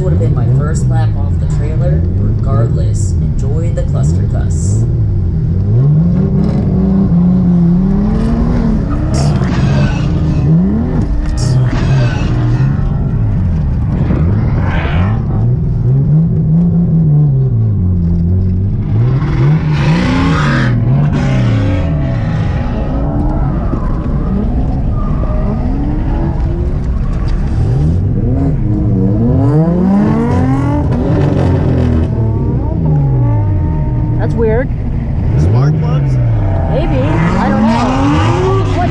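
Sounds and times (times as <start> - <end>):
car engine revving roughly: 5.6 - 23.3, 35.2 - 38.9.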